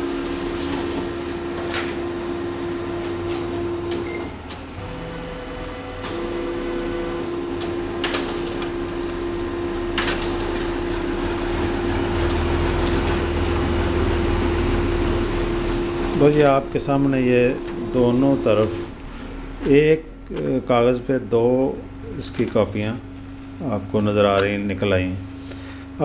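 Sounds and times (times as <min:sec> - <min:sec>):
printer mechanical hum: 0:00.0 - 0:26.0
droning tone: 0:13.7 - 0:22.2.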